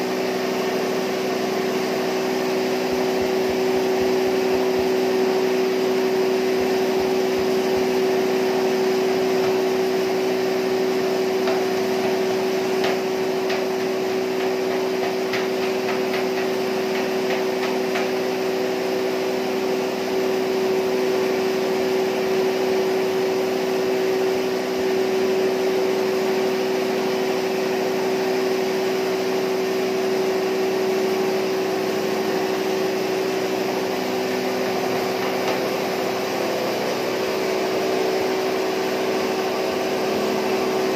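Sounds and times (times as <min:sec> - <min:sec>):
hammer mill grinding: 0:00.3 - 0:18.9.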